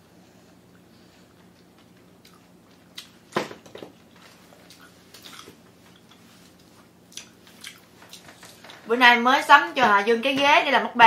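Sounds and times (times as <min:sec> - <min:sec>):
wet chewing and mouth smacking: 0:00.7 - 0:03.2, 0:04.5 - 0:08.3.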